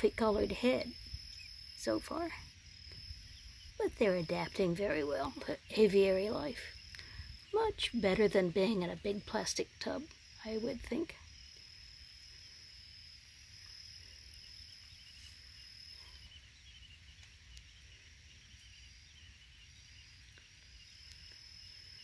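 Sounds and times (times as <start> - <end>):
high-pitched insect trill: 0.0 - 22.0
faint soft chirps: 0.8 - 7.6, 14.0 - 22.0.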